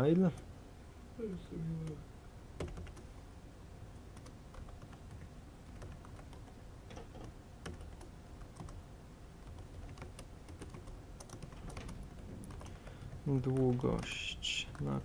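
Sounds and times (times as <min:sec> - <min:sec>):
computer keyboard typing: 0:02.6 - 0:03.1, 0:04.1 - 0:08.8, 0:09.4 - 0:15.0.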